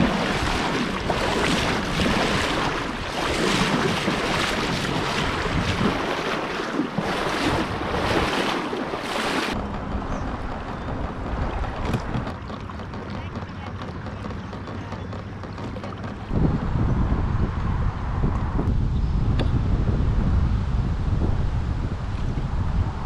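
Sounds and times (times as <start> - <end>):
river water rushing and splashing: 0.0 - 9.9
wind on microphone: 0.0 - 23.0.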